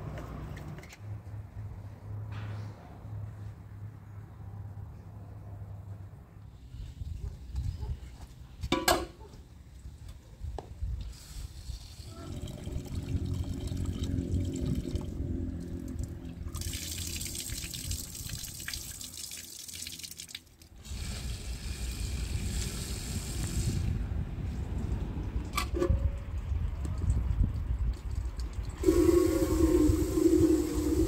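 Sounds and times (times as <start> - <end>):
water pouring and splashing: 11.5 - 23.9, 26.3 - 31.0.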